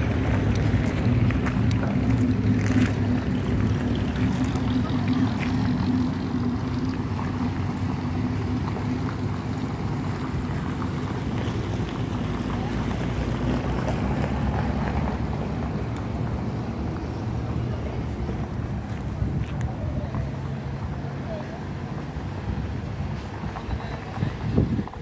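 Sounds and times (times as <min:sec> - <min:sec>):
vehicle engine idling: 0:00.0 - 0:25.0
wind noise on microphone: 0:22.4 - 0:25.0.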